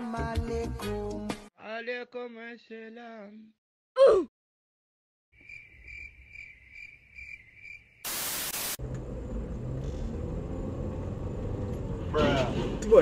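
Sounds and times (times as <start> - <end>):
static hiss burst: 8.0 - 8.8
car road and engine rumble: 8.8 - 13.0.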